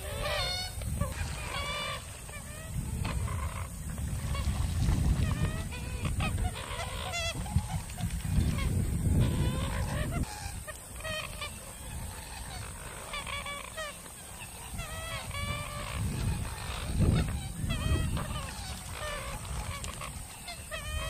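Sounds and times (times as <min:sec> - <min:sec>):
marsh birds calling: 0:05.2 - 0:21.0.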